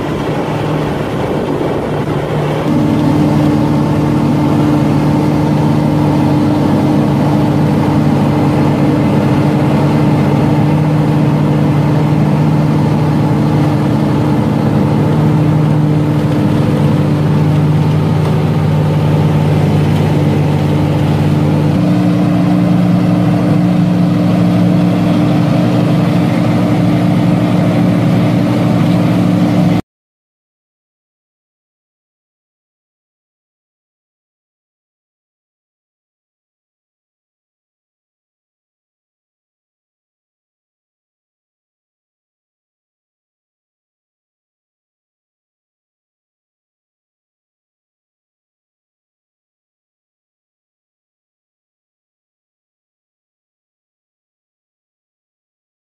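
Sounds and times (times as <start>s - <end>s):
diesel engine and hydraulics running: 0.0s - 29.8s.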